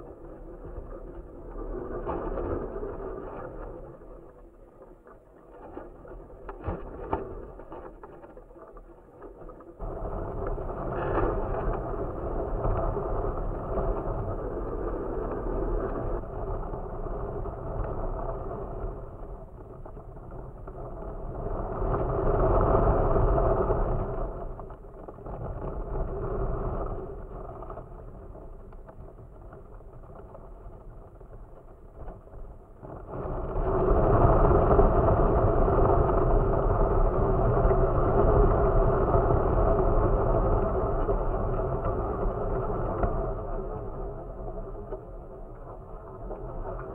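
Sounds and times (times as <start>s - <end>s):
wind buffeting microphone: 9.7s - 46.9s.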